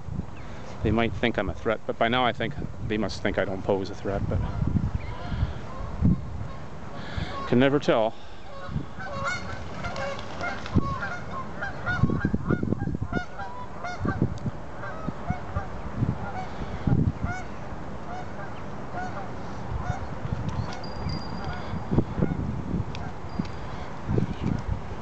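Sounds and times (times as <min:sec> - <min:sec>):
goslings peeping: 0:04.3 - 0:20.8.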